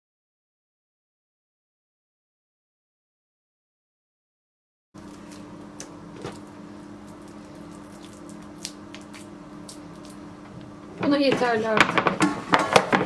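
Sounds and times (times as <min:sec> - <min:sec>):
sticky dough squishes: 0:05.0 - 0:10.5
steady low hum: 0:05.0 - 0:13.0.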